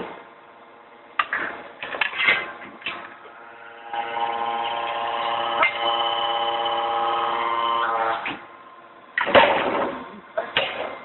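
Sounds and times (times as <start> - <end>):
machine hum: 3.0 - 11.0.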